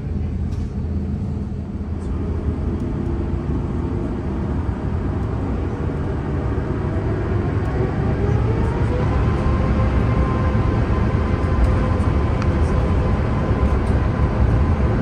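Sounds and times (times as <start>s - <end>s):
low rumble in aircraft cabin: 0.0s - 15.0s
jet engines spooling up: 0.4s - 15.0s.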